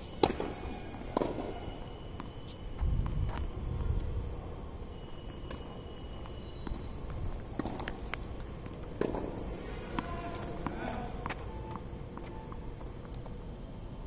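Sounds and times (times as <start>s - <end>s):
racket striking tennis ball: 0.0s - 2.3s, 8.9s - 11.4s
tennis ball bouncing on court: 0.1s - 2.4s, 6.6s - 12.4s.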